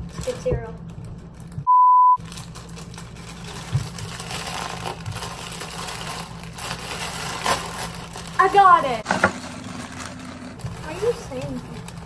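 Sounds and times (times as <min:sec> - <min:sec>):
high test-tone beep: 0:01.7 - 0:02.2
plastic bag crinkling: 0:02.2 - 0:12.0.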